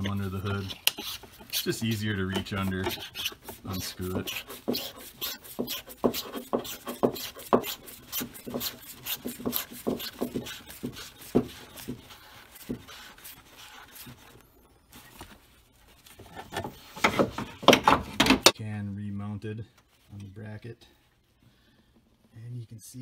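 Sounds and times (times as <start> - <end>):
gloved hands rubbing and scraping: 0.0 - 17.7.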